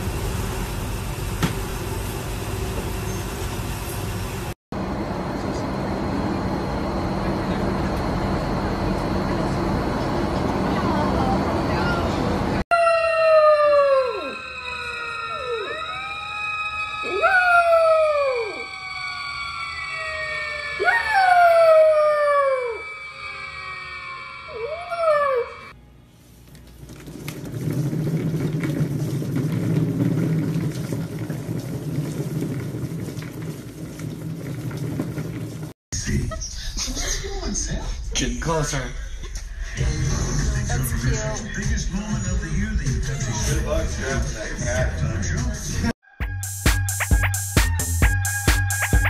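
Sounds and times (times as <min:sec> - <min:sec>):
puppy howling: 0:12.7 - 0:19.2, 0:20.0 - 0:22.9, 0:24.5 - 0:25.7
steady high tone: 0:12.7 - 0:25.8
exercise wheel rumbling: 0:26.6 - 0:35.8.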